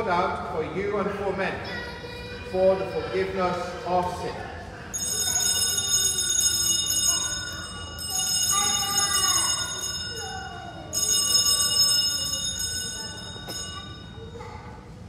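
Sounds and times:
altar bells ringing: 4.9s - 14.6s.

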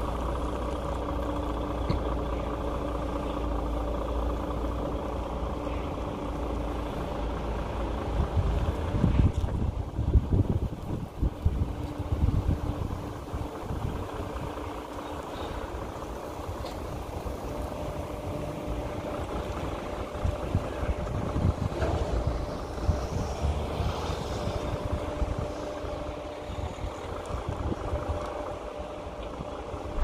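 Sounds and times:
truck engine idling: 0.0s - 30.0s
wind buffeting microphone: 6.1s - 30.0s.

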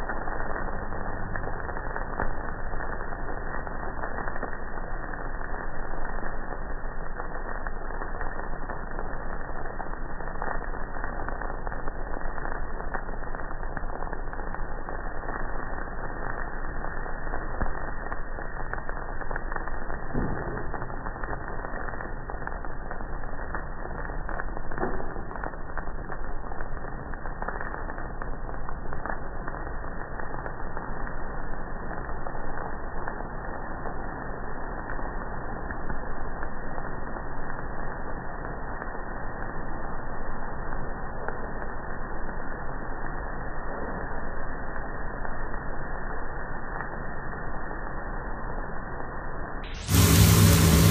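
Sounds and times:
roasted beans crackling: 49.6s - 50.9s
coffee roaster rushing noise: 49.8s - 50.9s.

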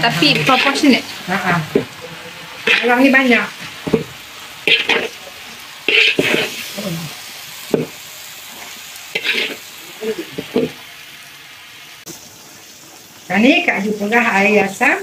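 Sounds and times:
metal spatula scraping a wok: 0.0s - 1.9s, 2.5s - 5.2s, 5.8s - 6.8s, 7.7s - 9.8s
vegetables sizzling: 0.0s - 15.0s.

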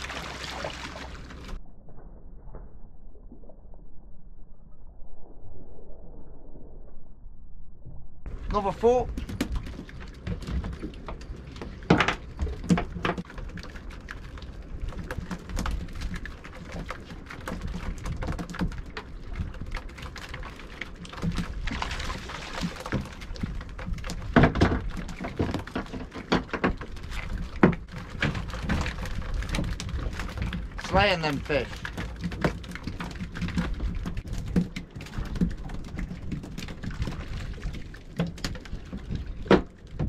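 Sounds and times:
thuds and taps on fibreglass boat: 8.3s - 13.6s, 14.8s - 19.8s, 22.6s - 40.0s
fish flapping on boat deck: 8.3s - 40.0s.

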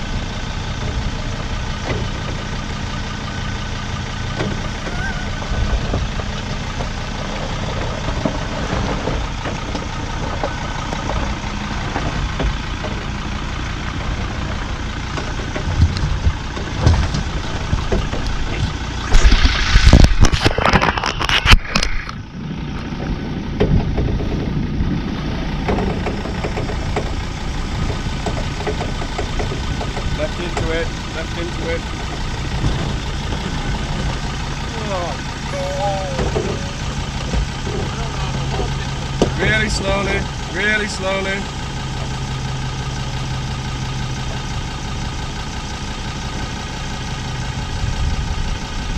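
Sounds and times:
off-road vehicle engine running: 0.0s - 48.9s
loud rough burst of noise: 19.0s - 22.4s.

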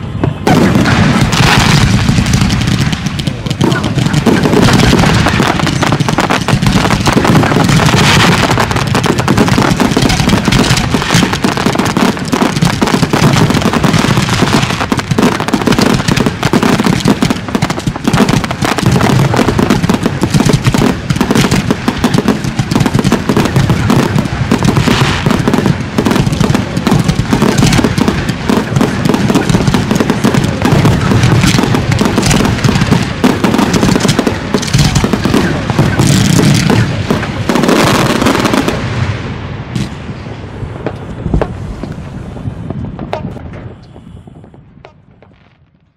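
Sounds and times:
fireworks firing: 0.0s - 45.9s.

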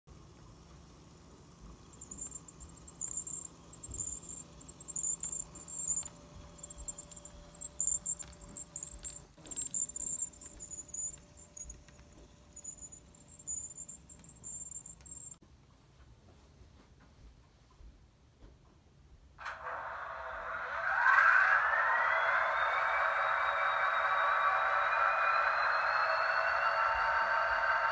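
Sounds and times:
model locomotive engine hum: 0.1s - 15.4s, 19.4s - 27.9s
steady mid-pitched tone: 1.6s - 15.4s
high-pitched chirps: 1.7s - 15.4s.

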